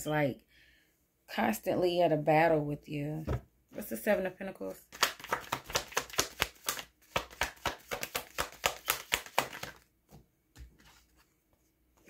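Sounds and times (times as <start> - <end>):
cards being shuffled: 4.9 - 9.9.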